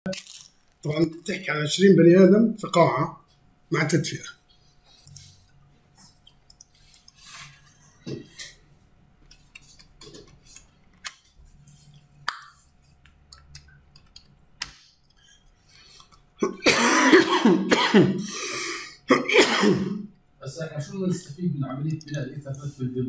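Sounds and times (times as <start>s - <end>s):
keyboard clicks: 12.3s - 14.8s, 21.9s - 22.6s
person coughing: 16.4s - 20.0s.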